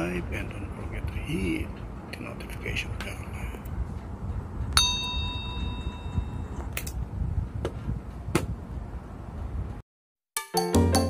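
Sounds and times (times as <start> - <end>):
bell-like notification ding: 4.8 - 6.5.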